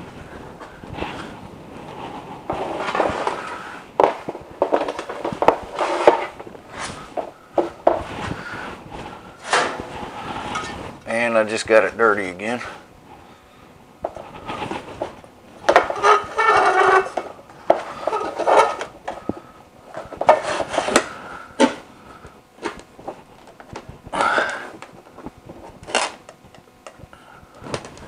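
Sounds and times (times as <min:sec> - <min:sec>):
plastic scraping against metal: 0:01.0 - 0:11.0, 0:14.1 - 0:21.8.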